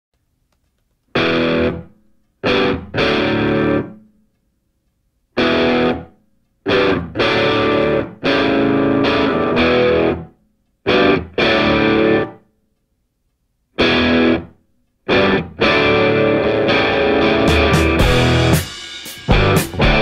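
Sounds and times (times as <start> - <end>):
distorted electric guitar chords: 1.2 - 4.1, 5.4 - 10.3, 10.9 - 12.4, 13.8 - 20.0.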